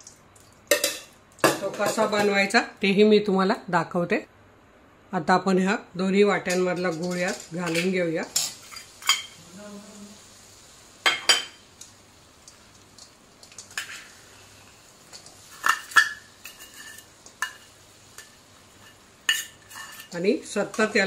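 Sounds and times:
spatula scraping metal bowl: 0:18.8 - 0:20.2.

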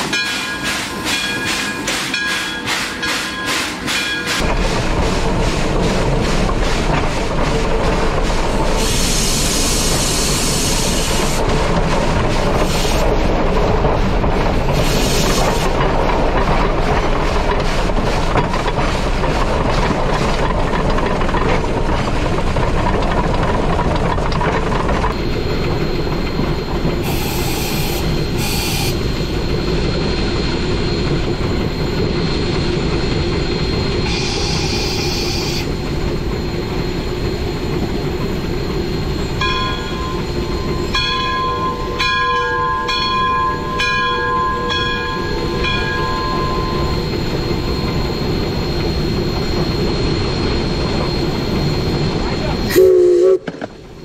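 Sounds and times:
steam locomotive rumble and clatter: 0:00.0 - 0:54.0
steam hiss bursts: 0:08.7 - 0:11.4, 0:27.0 - 0:29.1.

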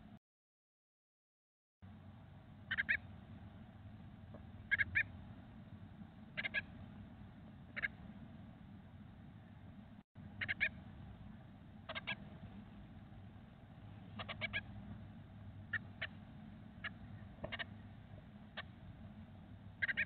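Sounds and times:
low steady hum: 0:01.8 - 0:20.0.

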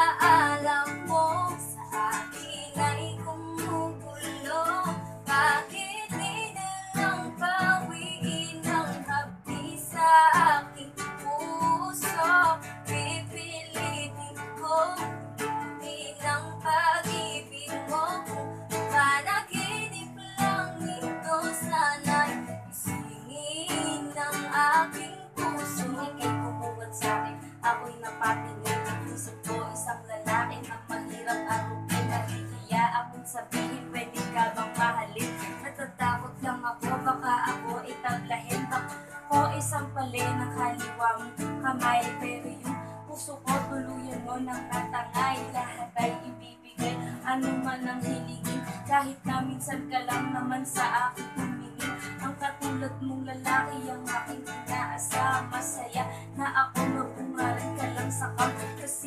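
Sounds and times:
strummed acoustic guitar: 0:00.0 - 0:59.0
woman singing: 0:00.0 - 0:59.0.

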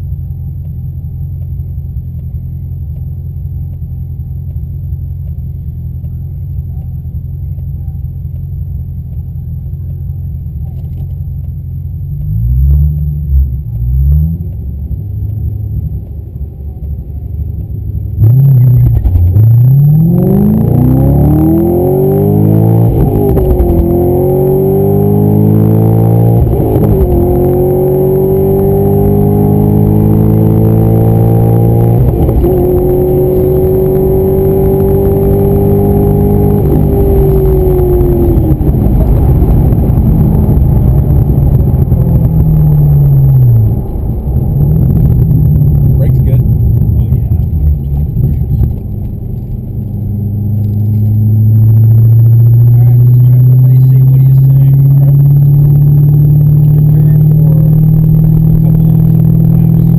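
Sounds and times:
car engine revving: 0:00.0 - 0:59.9
car accelerating through gears: 0:17.5 - 0:59.9.

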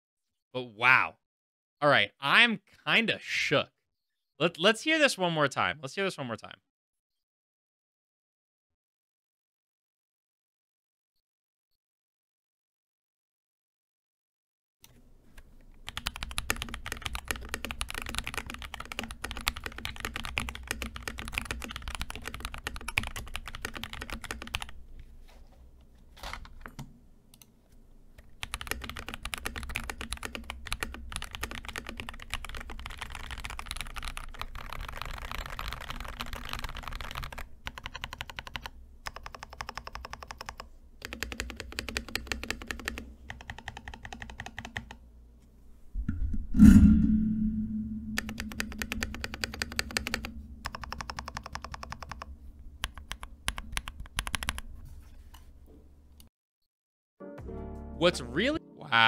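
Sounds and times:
fast typing on mechanical keyboard: 0:15.8 - 0:24.8, 0:28.4 - 0:45.0, 0:48.2 - 0:54.7.

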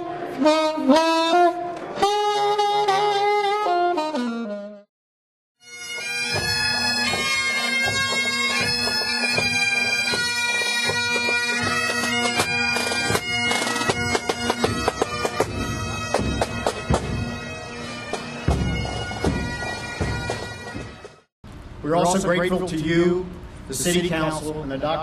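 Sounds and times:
bagpipe band playing march: 0:05.6 - 0:21.3
percussive drum beats: 0:06.3 - 0:17.4, 0:18.1 - 0:21.2.

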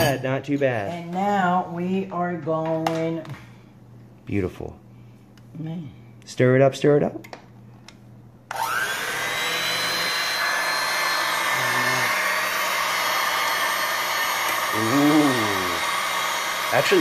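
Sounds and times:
electric hand mixer whirring: 0:08.5 - 0:17.0.

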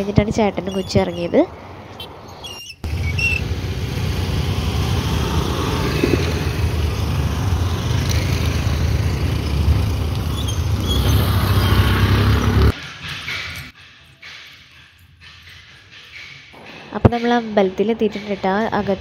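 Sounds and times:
scooter and motorcycle engines: 0:02.8 - 0:13.8
motorcycle passing close: 0:02.9 - 0:12.8.

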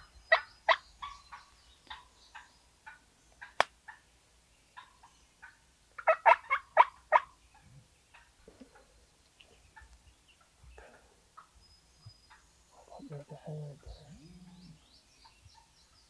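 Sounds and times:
turkey gobbling: 0:04.8 - 0:07.4.

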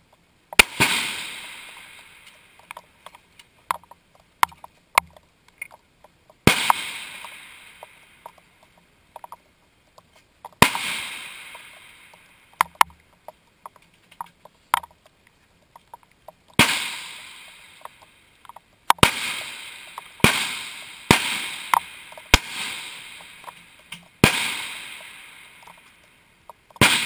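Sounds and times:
gunshot echo rolling away: 0:00.6 - 0:02.8, 0:06.4 - 0:08.4, 0:10.6 - 0:12.8, 0:16.6 - 0:18.1, 0:19.0 - 0:25.9, 0:26.8 - 0:27.0
rifle shots: 0:00.6 - 0:02.8, 0:06.4 - 0:08.1, 0:10.6 - 0:12.8, 0:16.6 - 0:18.0, 0:19.0 - 0:23.6, 0:24.2 - 0:25.8, 0:26.8 - 0:27.0.

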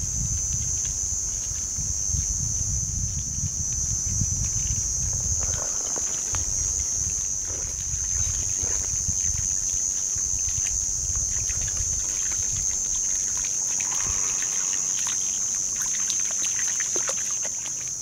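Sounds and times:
high-pitched insect drone: 0:00.0 - 0:18.0
light clicks on pebbles: 0:04.8 - 0:10.7
dog splashing in shallow water: 0:05.0 - 0:18.0.

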